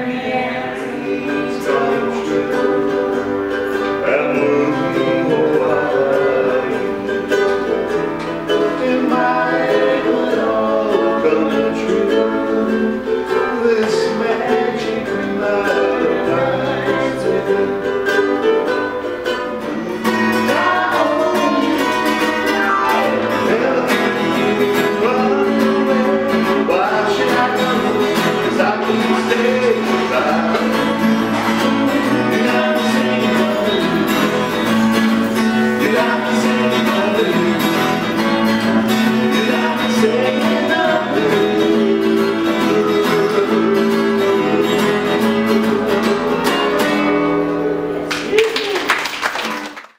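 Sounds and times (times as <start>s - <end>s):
woman singing: 0.0s - 2.9s, 20.3s - 30.7s
keyboard: 0.0s - 48.4s
ukulele: 0.0s - 49.8s
acoustic guitar: 0.0s - 49.9s.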